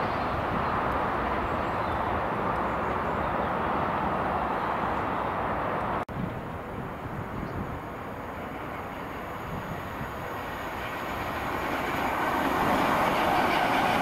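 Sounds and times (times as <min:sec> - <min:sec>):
diesel locomotive running: 0:06.4 - 0:14.0
distant train approaching: 0:06.6 - 0:14.0.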